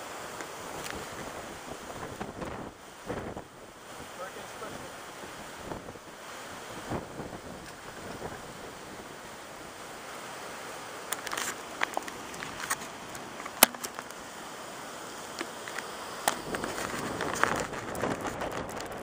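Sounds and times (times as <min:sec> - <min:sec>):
strong wind on microphone: 0:00.7 - 0:09.7, 0:16.3 - 0:19.0.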